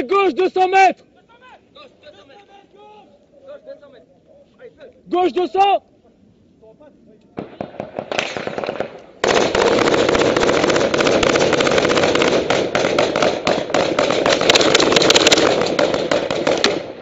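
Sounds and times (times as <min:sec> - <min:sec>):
automatic gunfire: 0:07.4 - 0:17.0
gunshots: 0:07.4 - 0:17.0.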